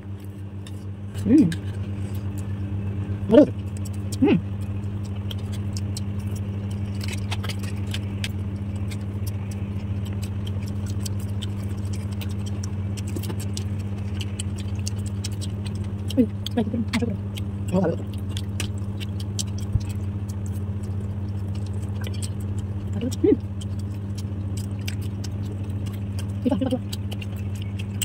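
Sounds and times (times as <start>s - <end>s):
steady low hum: 0.0s - 28.0s
short vocal sounds: 1.2s - 1.6s.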